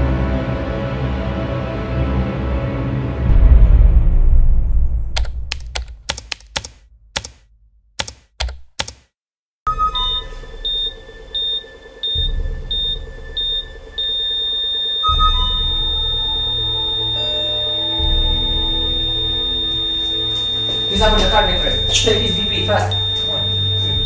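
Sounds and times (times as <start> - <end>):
sharp typewriter-like clicks: 5.2 - 7.4, 8.0 - 9.1
patient monitor beeps: 9.7 - 24.0.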